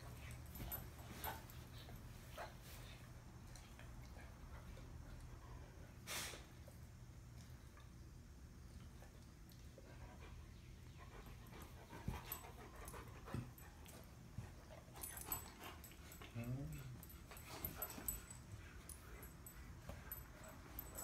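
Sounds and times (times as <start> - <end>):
dogs thumping and scuffling: 0.0 - 3.1, 11.2 - 21.0.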